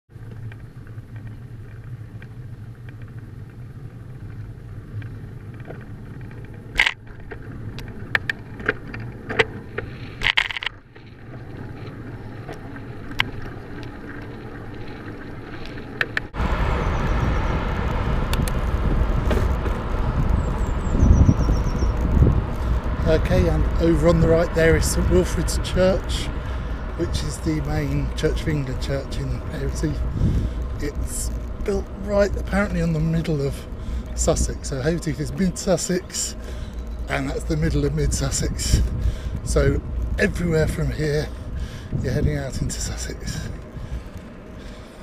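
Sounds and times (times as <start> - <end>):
bicycle road noise: 0.1 - 45.0
steady low hum: 0.2 - 45.0
wind buffeting: 11.0 - 45.0.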